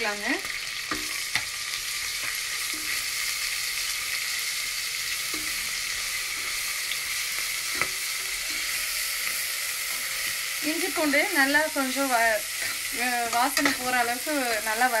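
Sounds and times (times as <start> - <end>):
paste sizzling in hot oil: 0.0 - 15.0
metal spatula scraping pot: 5.1 - 10.5, 12.4 - 14.8.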